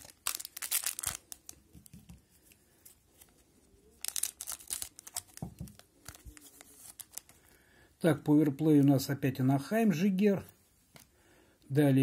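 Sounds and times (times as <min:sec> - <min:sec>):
foil card pack crinkling: 0:00.0 - 0:01.7, 0:04.0 - 0:07.3.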